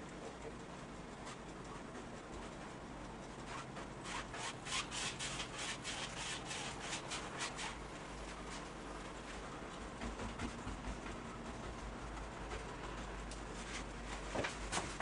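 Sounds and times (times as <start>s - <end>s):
paintbrush scrubbing on canvas: 3.5s - 8.7s.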